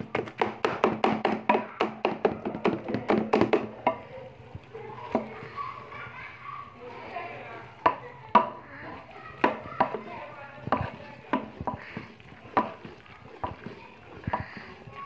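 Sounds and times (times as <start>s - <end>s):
wooden utensil knocking metal pot: 0.0s - 4.0s, 7.8s - 8.6s, 9.4s - 14.9s.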